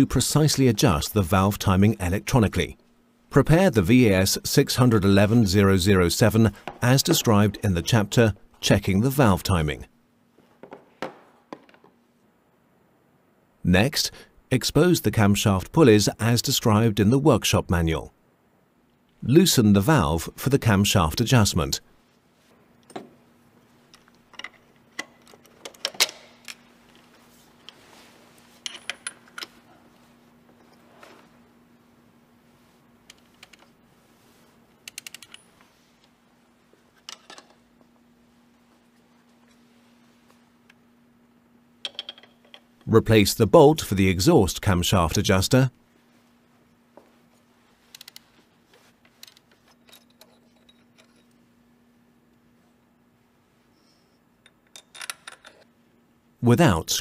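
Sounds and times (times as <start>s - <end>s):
faint steady hum: 0.0s - 57.0s
metal tools clicking and clinking: 28.6s - 29.6s, 37.0s - 37.6s, 41.8s - 42.8s, 49.2s - 51.4s, 54.4s - 55.7s
tool clicks and taps on metal: 41.8s - 42.6s.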